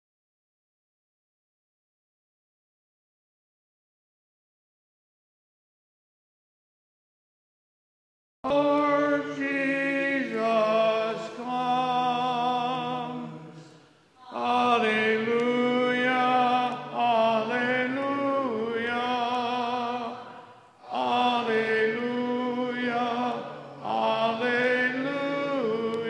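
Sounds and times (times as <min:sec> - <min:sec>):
person singing liturgical chant: 0:08.5 - 0:26.0.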